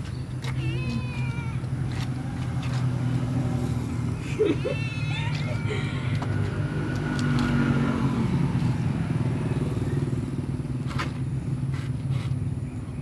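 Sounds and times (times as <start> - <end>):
small engine droning: 1.7 - 13.0.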